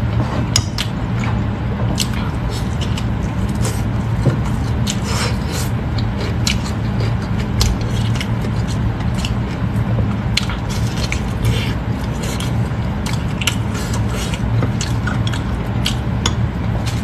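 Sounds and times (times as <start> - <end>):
steady low hum: 0.0 - 17.0
wet chewing and mouth smacks: 5.9 - 17.0.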